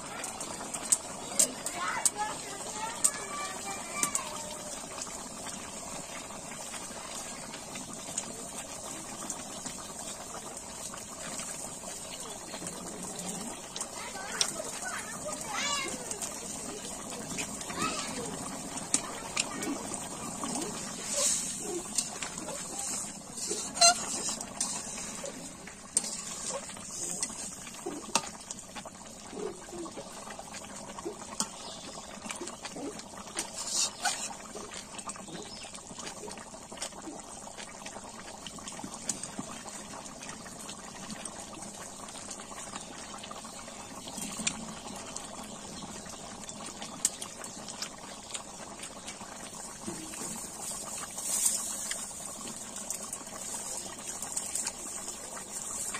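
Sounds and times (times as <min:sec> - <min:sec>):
curry bubbling at a boil: 0:00.0 - 0:55.9
ladle stirring curry: 0:18.4 - 0:28.4.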